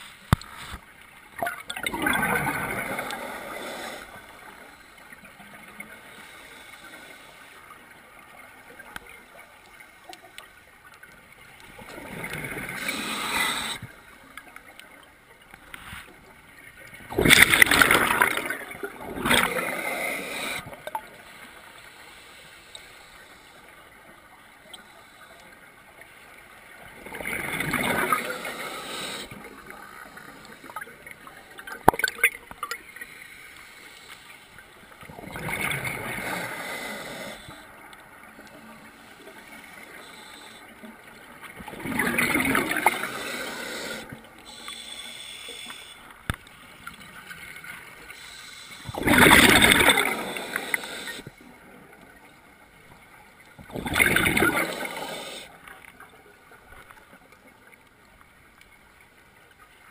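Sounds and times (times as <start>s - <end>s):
quiet underwater background: 0.0s - 59.9s
rush of bubbles underwater: 1.4s - 4.4s, 17.0s - 21.1s, 26.8s - 30.9s, 35.0s - 37.4s, 41.2s - 44.1s, 48.9s - 51.2s, 53.6s - 55.5s.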